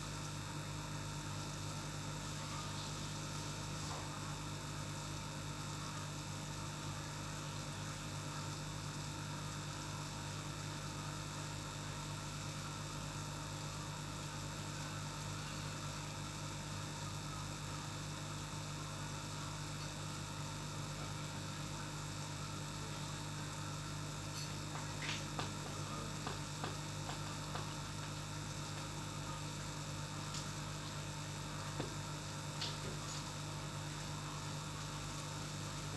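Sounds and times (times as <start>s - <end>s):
air pump humming: 19.4s - 35.9s.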